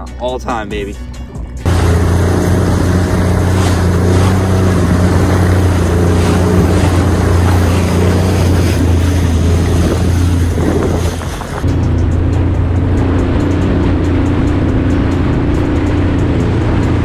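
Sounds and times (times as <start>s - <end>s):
watercraft engine hum: 1.6s - 17.0s
water rushing from wake: 1.7s - 11.7s.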